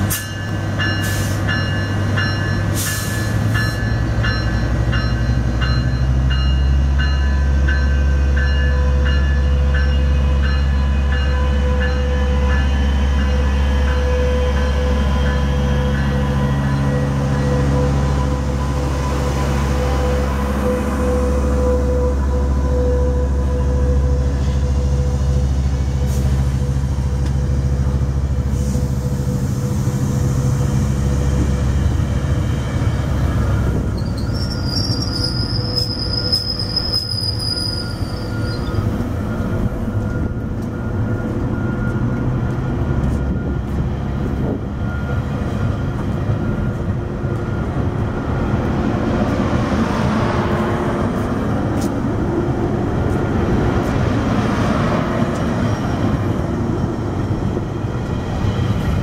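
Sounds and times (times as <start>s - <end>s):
diesel locomotive engine drone: 0.0s - 59.0s
train coaches rolling past: 0.0s - 59.0s
train wheels squealing: 32.3s - 43.7s.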